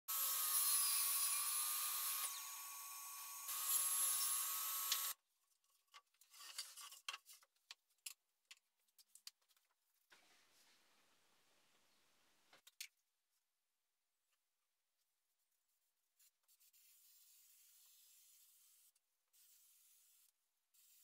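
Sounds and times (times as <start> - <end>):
power tool whining on wood: 0.1 - 5.1.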